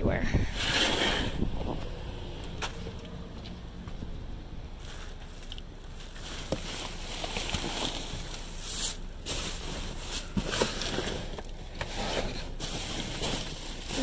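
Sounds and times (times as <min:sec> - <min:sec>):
cardboard and trash rustling: 0:04.7 - 0:14.0.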